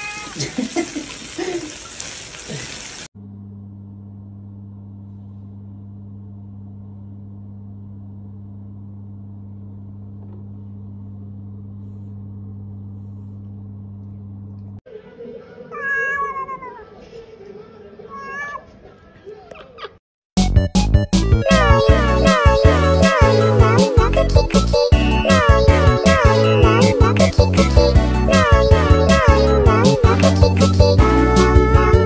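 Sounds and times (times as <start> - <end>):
cat meowing: 0.0 - 0.4, 15.7 - 17.1, 18.1 - 19.1, 28.3 - 29.3
steady low hum: 3.2 - 14.8.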